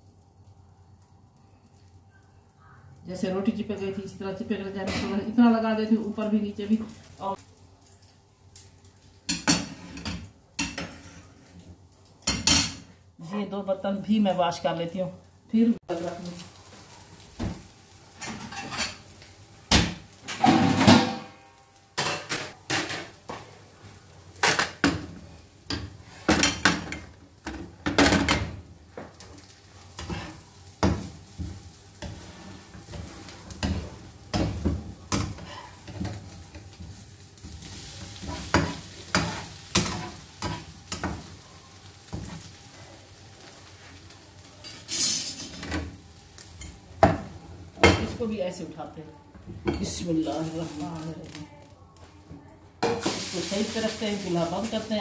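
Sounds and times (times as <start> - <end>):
food sizzling in pan: 0.0 - 51.8, 52.8 - 55.0
metal turner scraping frying pan: 18.2 - 19.0, 29.9 - 30.6, 32.0 - 36.8, 44.6 - 45.8
knocks of pans and plates: 19.7 - 21.4.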